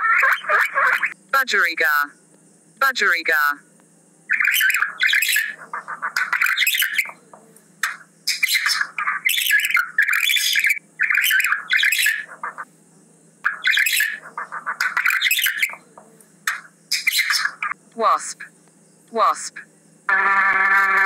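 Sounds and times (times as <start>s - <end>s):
budgerigar chattering: 0.0s - 1.2s, 4.3s - 12.7s, 13.4s - 17.8s.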